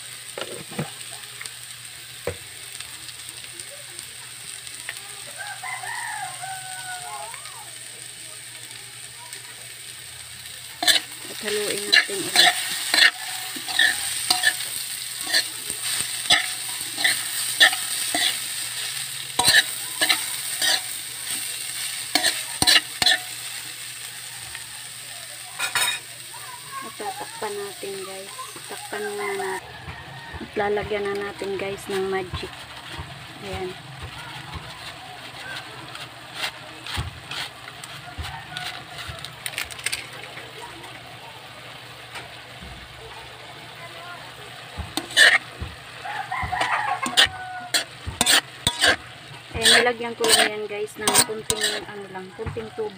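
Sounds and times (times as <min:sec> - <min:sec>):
food sizzling: 0:00.0 - 0:52.9
sharp crackles: 0:08.6 - 0:41.0
foil sachet crinkling: 0:10.6 - 0:23.8, 0:30.6 - 0:40.8
metal spoon scraping a pan: 0:10.8 - 0:23.7, 0:25.6 - 0:26.1, 0:30.5 - 0:40.2, 0:44.8 - 0:52.9.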